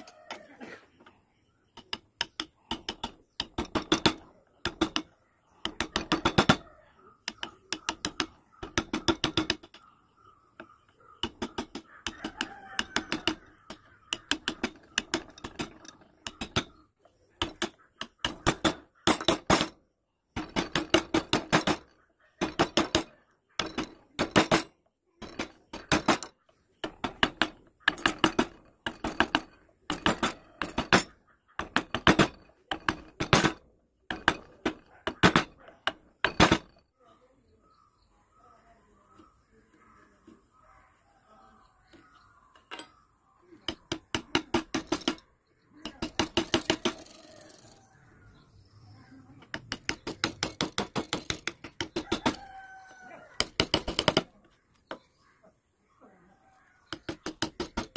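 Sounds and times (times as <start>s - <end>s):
mallet tapping chisel into wood: 7.2s - 9.8s, 10.6s - 16.8s, 43.7s - 45.2s, 49.4s - 52.4s, 53.4s - 54.3s.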